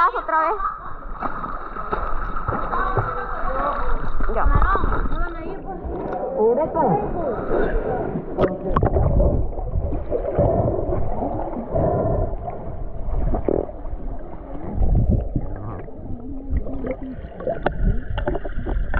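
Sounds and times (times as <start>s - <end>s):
underwater gurgling bubbles: 7.0s - 18.9s.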